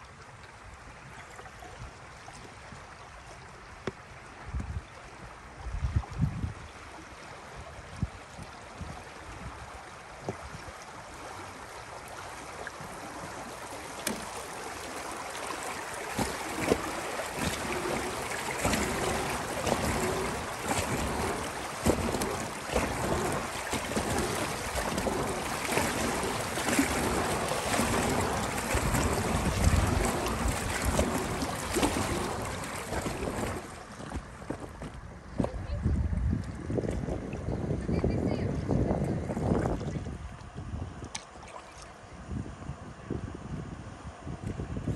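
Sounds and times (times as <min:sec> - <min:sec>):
water washing along hull: 0:00.0 - 0:42.2
paddle splashing in water: 0:06.8 - 0:37.6, 0:38.9 - 0:42.0.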